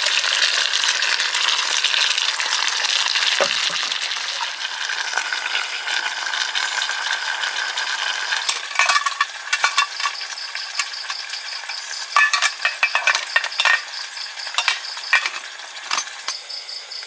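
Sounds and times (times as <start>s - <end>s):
food sizzling in a pan: 0.0s - 17.0s
metal utensil stirring in a pan: 8.4s - 16.4s.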